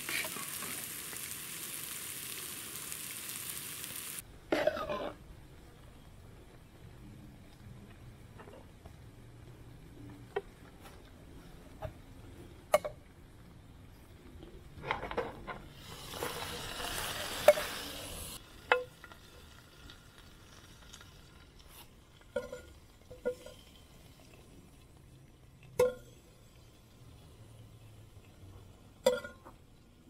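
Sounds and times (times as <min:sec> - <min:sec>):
hot pan sizzling: 0:00.0 - 0:05.2, 0:15.7 - 0:25.0.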